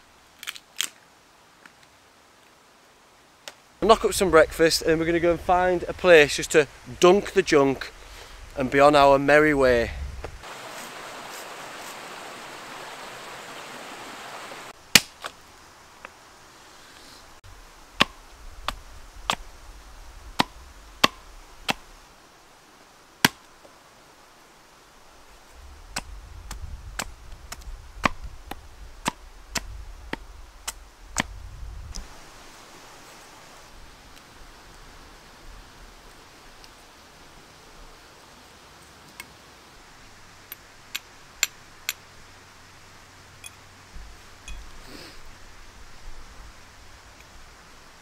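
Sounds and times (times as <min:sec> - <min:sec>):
steady hiss: 0:00.0 - 0:48.0
blade chopping branch: 0:14.9 - 0:15.4.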